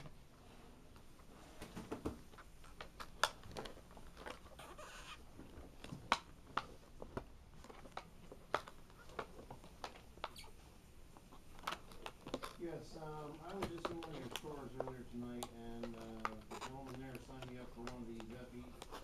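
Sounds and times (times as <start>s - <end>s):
plastic packaging clicks: 5.5s - 10.5s, 11.5s - 19.0s.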